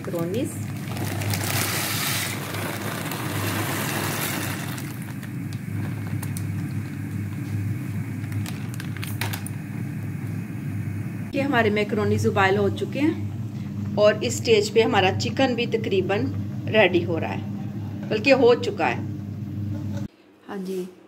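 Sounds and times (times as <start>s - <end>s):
water boiling: 0.0s - 11.4s
pasta poured into boiling water: 0.4s - 9.6s
low hum: 2.4s - 20.2s.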